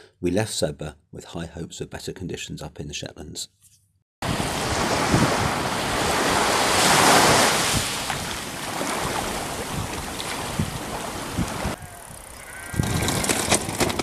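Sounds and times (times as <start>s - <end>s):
waves washing on beach: 4.2s - 11.8s
wind buffeting microphone: 4.2s - 14.0s.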